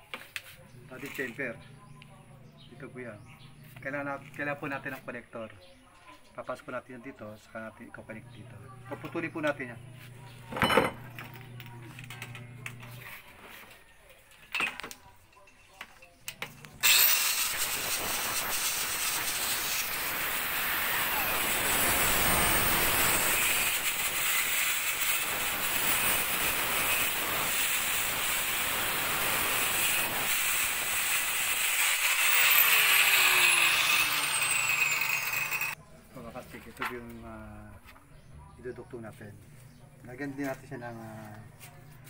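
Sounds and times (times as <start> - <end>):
angle grinder cutting plastic pipe: 16.7 - 35.8.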